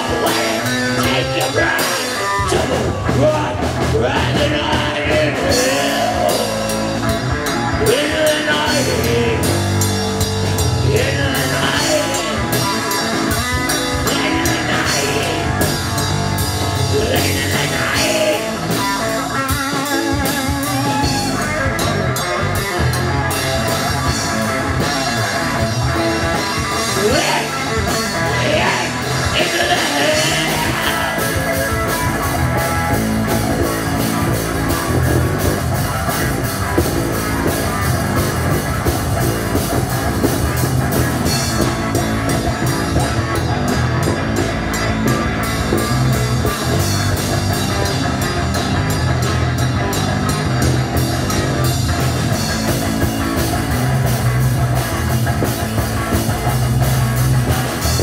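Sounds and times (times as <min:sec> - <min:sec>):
vocals: 0:00.0 - 0:21.8, 0:26.2 - 0:32.0
drum kit: 0:00.0 - 0:58.0
electric guitars: 0:00.0 - 0:58.0.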